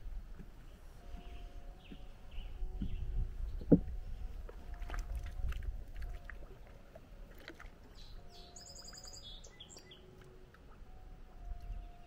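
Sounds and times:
faint low rumble: 0.0 - 12.0
high bird trill: 7.9 - 10.1.

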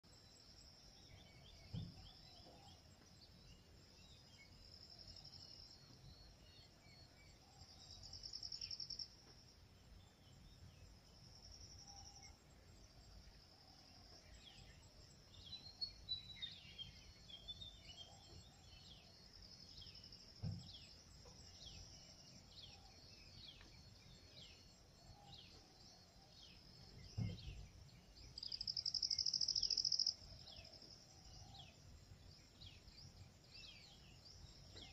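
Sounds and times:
insects buzzing: 18.6 - 34.9
soft low thumps: 27.0 - 27.7.

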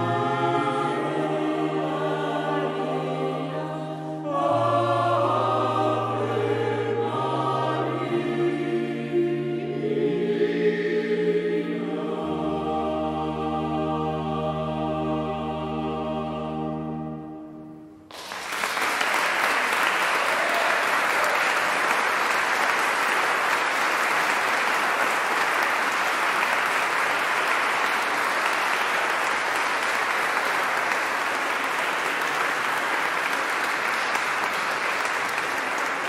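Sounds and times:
choir singing held chord: 0.0 - 17.9
audience applauding: 18.1 - 36.0.

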